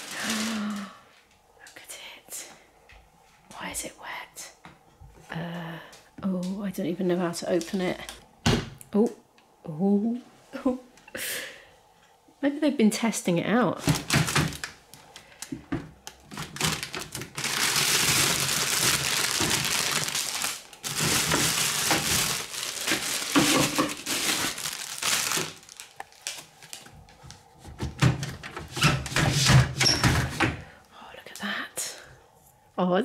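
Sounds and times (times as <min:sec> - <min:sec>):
plastic bag crinkling: 0:00.0 - 0:01.0, 0:13.8 - 0:27.4.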